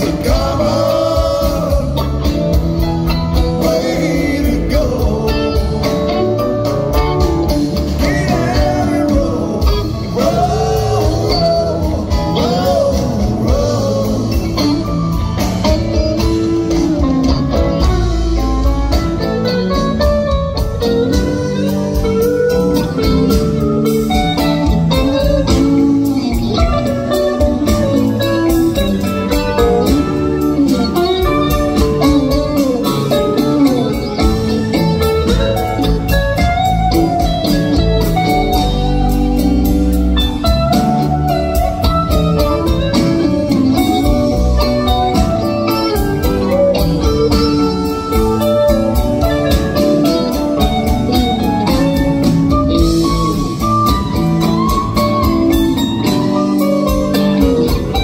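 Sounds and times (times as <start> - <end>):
electric guitar lead lines: 0.0 - 58.0
live rock band playing: 0.0 - 58.0.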